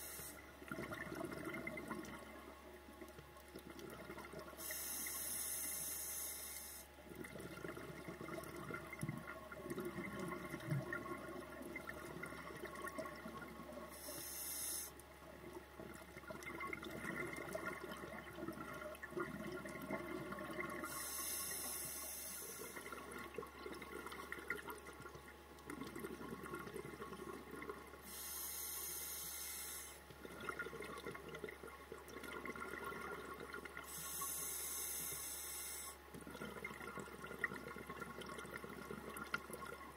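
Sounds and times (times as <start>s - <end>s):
regulator breath hiss: 4.6s - 6.9s, 14.0s - 15.0s, 20.9s - 22.8s, 28.1s - 30.0s, 33.9s - 36.0s
bubbling exhalations underwater: 22.8s - 27.9s.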